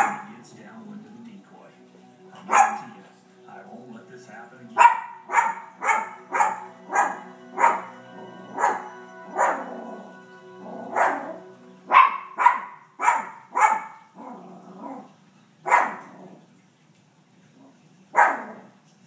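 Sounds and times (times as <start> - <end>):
small dog barking: 0.0 - 0.3, 2.4 - 2.9, 4.8 - 7.9, 11.9 - 16.2, 18.1 - 18.7
television background music: 0.0 - 19.0.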